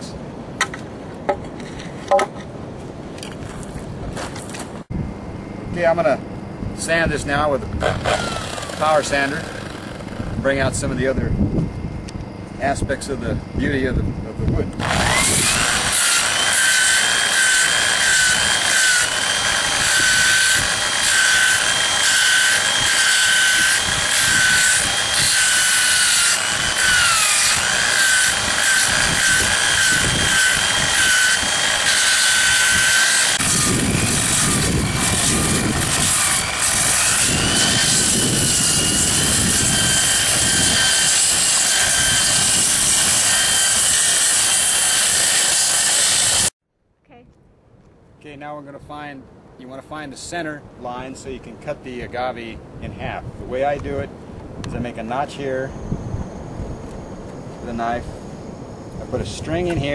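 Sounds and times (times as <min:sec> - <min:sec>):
angle grinder whine: 0:06.8 - 0:46.5
low grinding sound: 0:07.8 - 0:11.0.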